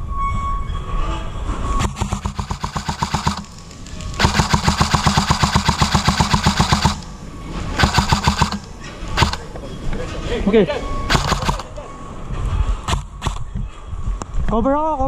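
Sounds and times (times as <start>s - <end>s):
airsoft gun firing full-auto bursts: 1.8s - 3.6s, 4.2s - 7.2s, 7.8s - 9.5s, 11.1s - 11.7s.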